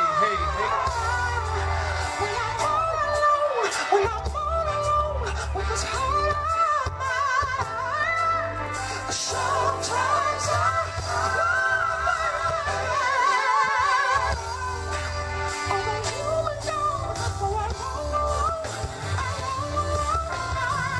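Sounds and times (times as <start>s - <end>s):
live band playing: 0.0s - 20.9s
man singing with vibrato: 0.0s - 20.9s.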